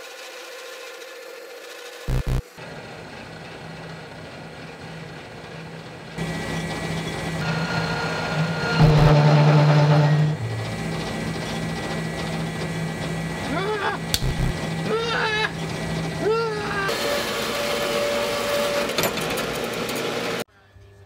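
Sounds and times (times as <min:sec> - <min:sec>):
machine hum: 0:02.1 - 0:02.5, 0:06.2 - 0:18.8
metal lathe running: 0:03.0 - 0:20.4
sharp click: 0:14.1 - 0:14.6.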